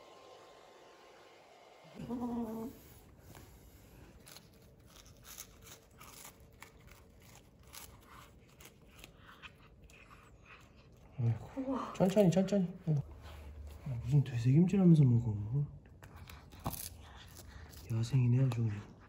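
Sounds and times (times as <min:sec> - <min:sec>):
cat chewing crunches: 0:03.2 - 0:12.4, 0:16.0 - 0:19.0.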